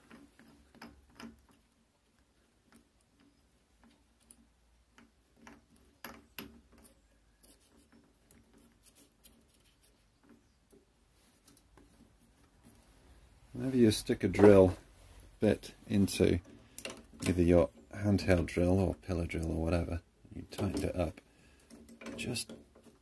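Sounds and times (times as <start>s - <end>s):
drill chuck clicks and ticks: 16.7s - 17.0s.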